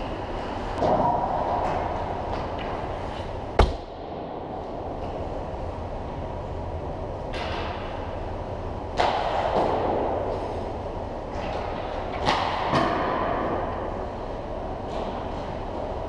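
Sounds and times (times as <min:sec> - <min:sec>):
ice rink rumble: 0:00.0 - 0:16.0.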